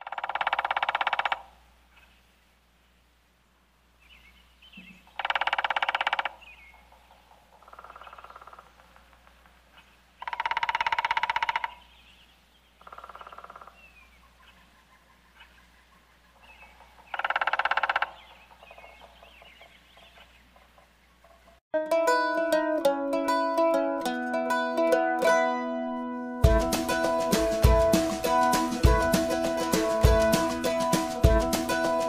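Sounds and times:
woodpecker drumming on tree: 0:00.0 - 0:01.6, 0:05.1 - 0:11.9, 0:12.8 - 0:13.9, 0:16.3 - 0:21.6.

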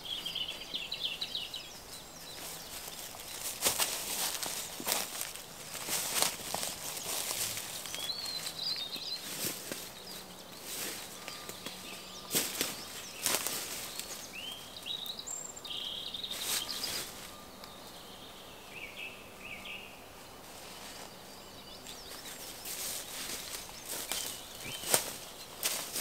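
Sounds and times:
birds chirping: 0:00.0 - 0:26.0
footsteps crunching dry leaves: 0:02.2 - 0:14.9, 0:16.2 - 0:17.4, 0:22.0 - 0:26.0.

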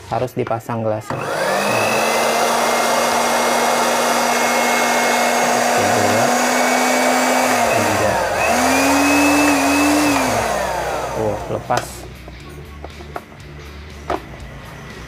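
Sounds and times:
blender motor whine: 0:01.0 - 0:12.0.

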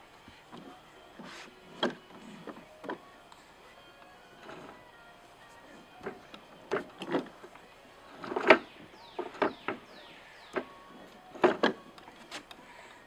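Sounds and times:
toy cart clattering on wooden deck: 0:04.4 - 0:04.8, 0:06.0 - 0:07.5, 0:08.1 - 0:09.9, 0:10.5 - 0:12.6.

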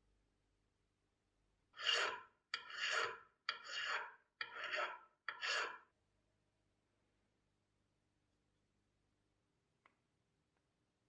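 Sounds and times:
file rasping on brass: 0:01.8 - 0:05.9.

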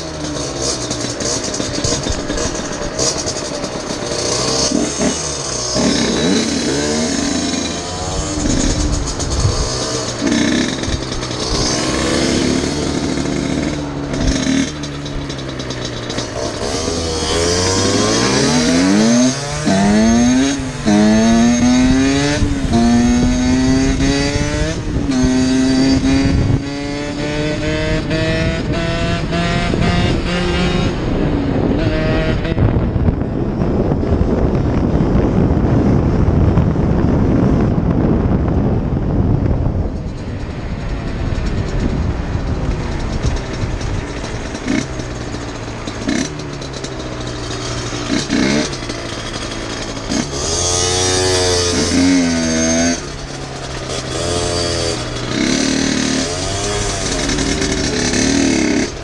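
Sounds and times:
dirt bike engine revving: 0:00.0 - 0:36.2, 0:40.0 - 0:59.0
wind rushing over microphone: 0:00.9 - 0:59.0.

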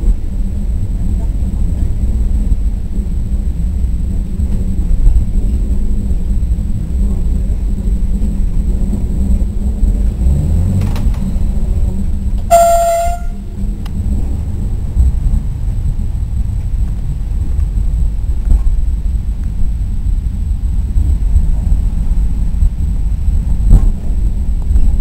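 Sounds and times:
train rumbling on track: 0:00.0 - 0:25.0
train horn toot: 0:12.4 - 0:13.6.

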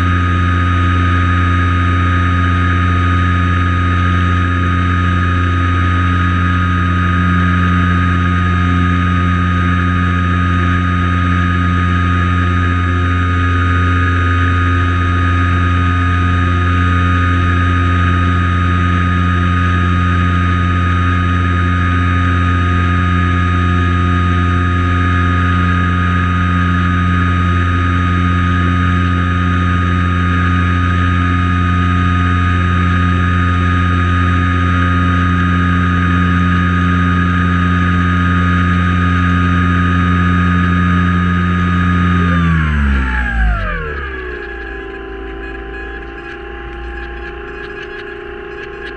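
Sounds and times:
plane engine drone: 0:00.0 - 0:48.9.

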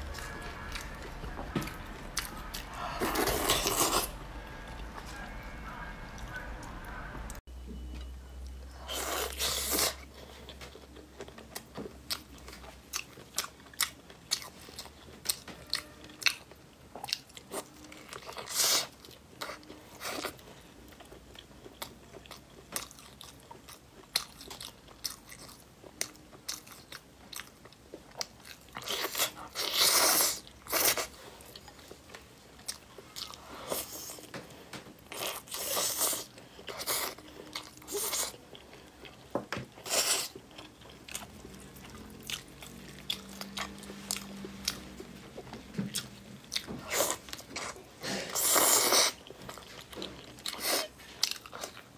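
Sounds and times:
chewing and crunching: 0:08.5 - 0:51.9.

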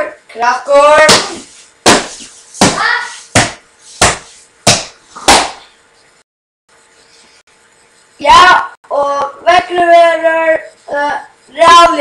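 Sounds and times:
sharp smacks: 0:01.0 - 0:05.6.

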